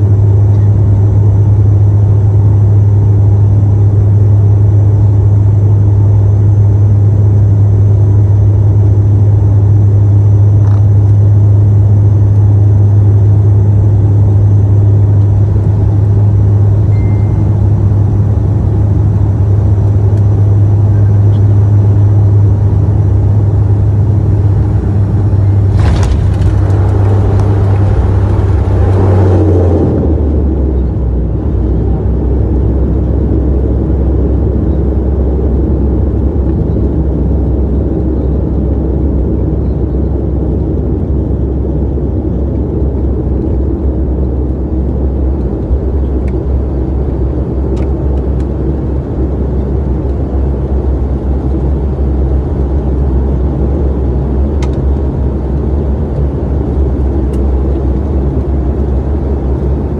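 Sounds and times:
propeller drone: 0.0s - 59.9s
rushing roar: 24.6s - 31.3s.

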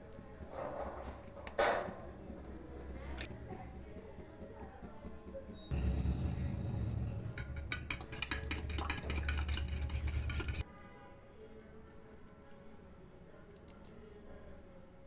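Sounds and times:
fork beating egg in glass bowl: 3.2s - 10.6s.

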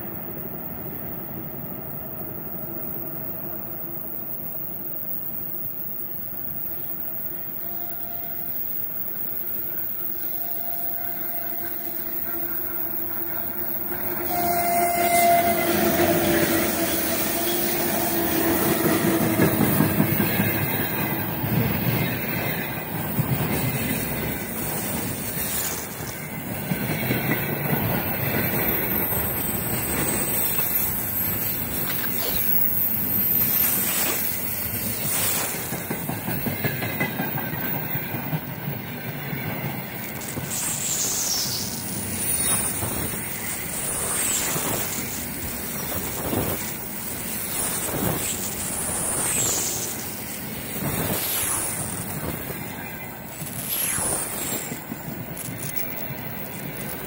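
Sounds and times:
electric locomotive humming: 0.0s - 57.0s
wheels clacking over rail joints: 11.8s - 32.3s.

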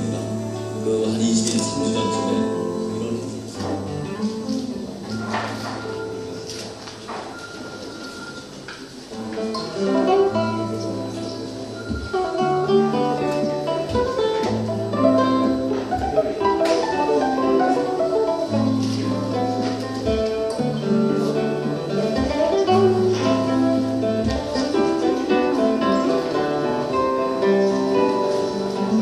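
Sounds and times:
fingerpicked acoustic guitars: 0.0s - 29.0s.

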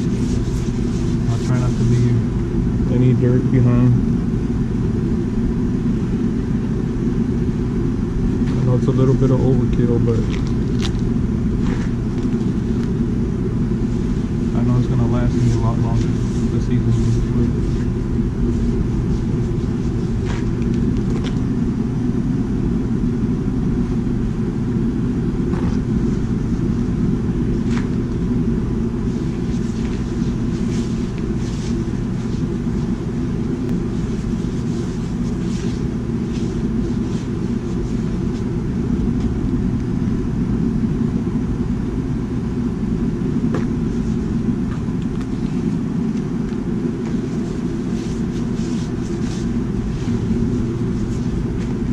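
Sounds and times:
paper towel scraping wok: 0.0s - 2.2s, 29.0s - 33.1s, 33.7s - 38.5s, 47.0s - 51.9s
propane burner rumbling: 0.0s - 51.9s.

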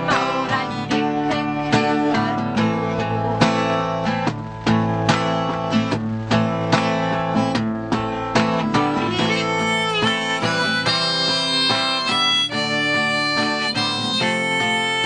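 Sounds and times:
acoustic guitar strumming: 0.0s - 15.0s
harmonica melody: 8.8s - 15.0s.

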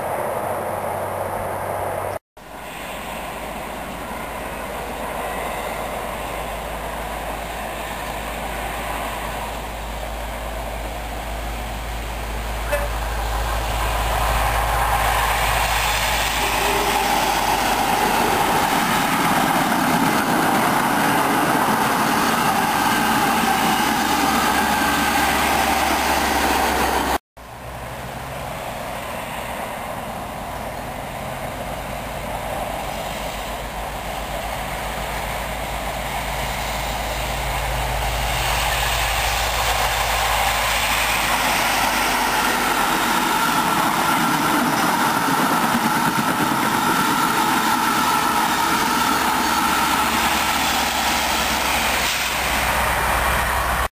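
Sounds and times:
diesel train engine rumble: 0.0s - 53.9s
train coaches passing: 0.0s - 53.9s.

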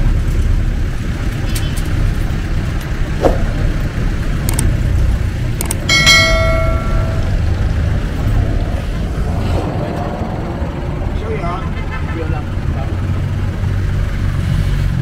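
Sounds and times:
vehicle engine and road rumble: 0.0s - 15.0s
sharp ringing metallic strike: 5.9s - 8.1s.

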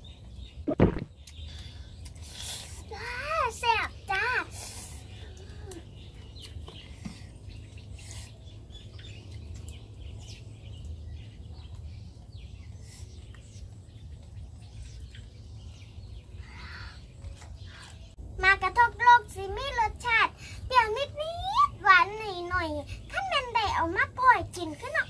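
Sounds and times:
children's voices: 2.8s - 5.9s.

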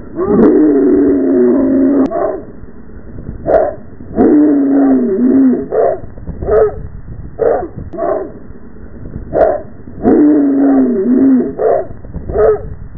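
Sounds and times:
dog howling bark: 1.5s - 2.5s, 3.5s - 6.8s, 7.4s - 8.4s, 9.4s - 12.7s
dog barking: 2.1s - 2.4s, 3.5s - 3.8s, 5.7s - 6.8s, 7.4s - 8.4s, 9.4s - 9.7s, 11.6s - 12.7s.

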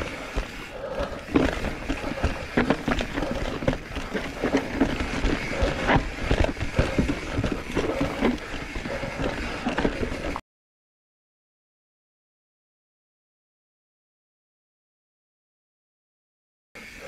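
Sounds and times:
bike knocking and rattling: 0.0s - 10.4s
bike tyres rumbling on dirt trail: 0.0s - 10.4s.

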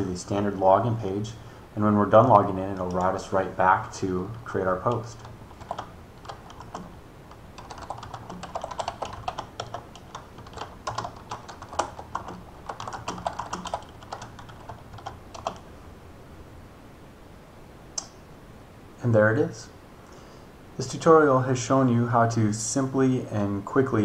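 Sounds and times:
typing on computer keyboard: 2.7s - 3.2s, 4.8s - 15.6s.

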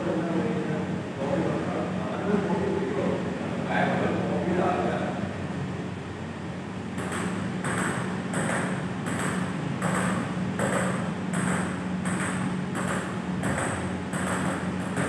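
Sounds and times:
steady low hum: 0.0s - 15.0s
table tennis ball hits: 7.0s - 15.0s.

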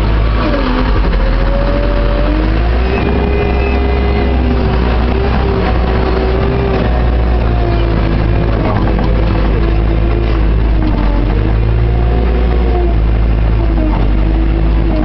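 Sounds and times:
diesel engine droning: 0.0s - 15.0s
hydraulic whine: 0.0s - 15.0s.

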